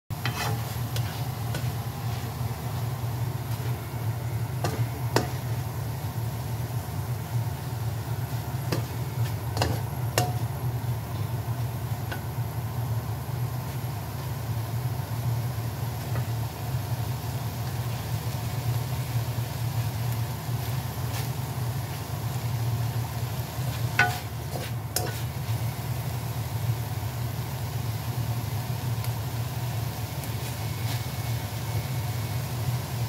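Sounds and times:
spatula scraping a wok: 0.1 - 3.9, 4.5 - 5.8, 8.3 - 10.5, 23.6 - 25.7
light sizzle: 0.1 - 33.0
steady low hum: 0.1 - 33.0.

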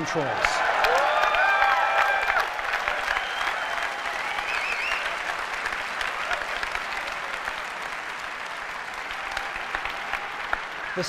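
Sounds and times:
audience applauding: 0.0 - 11.0
whistles: 3.1 - 5.2.

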